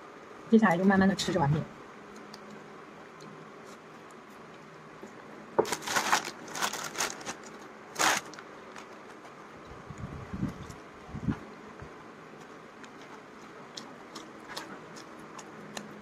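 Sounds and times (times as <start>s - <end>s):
plastic bag crinkling: 5.6s - 9.2s.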